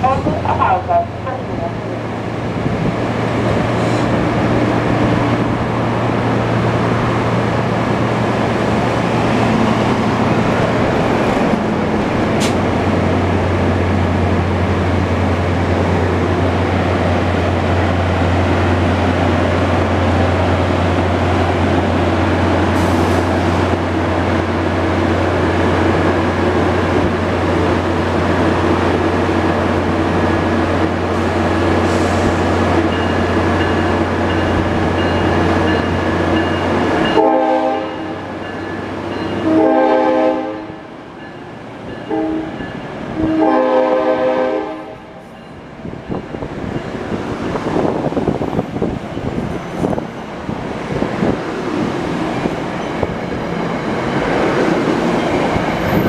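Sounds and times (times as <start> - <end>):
diesel locomotive running: 0.0 - 56.0
locomotive horn blasts: 37.2 - 38.2, 39.4 - 40.8, 42.1 - 42.6, 43.2 - 45.2.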